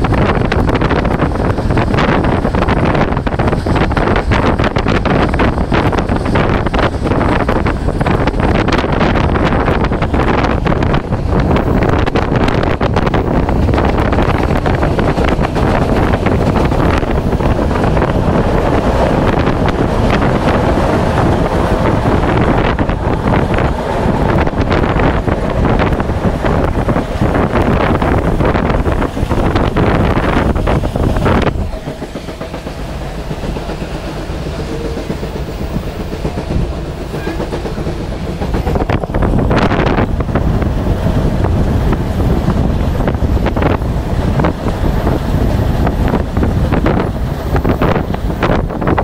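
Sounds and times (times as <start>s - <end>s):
passenger train running: 0.0s - 49.0s
wind buffeting microphone: 0.0s - 49.0s.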